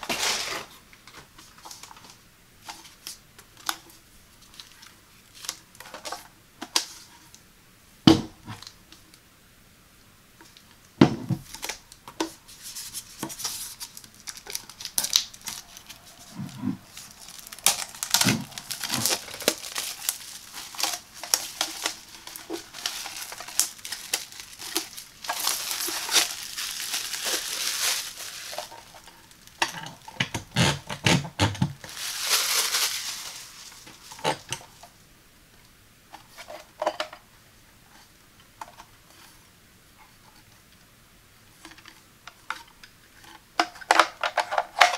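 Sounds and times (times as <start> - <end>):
plastic wrap crinkling: 1.4 - 6.2, 11.4 - 31.0, 31.6 - 34.9.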